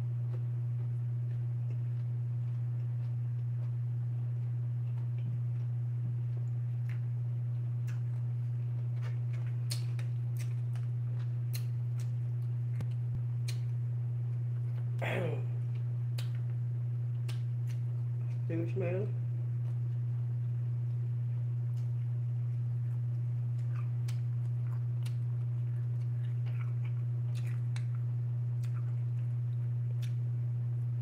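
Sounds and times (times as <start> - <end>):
steady low hum: 0.0 - 31.0
chewing: 0.2 - 13.7, 15.7 - 18.4, 21.7 - 30.2
brief humming voice: 15.0 - 15.6.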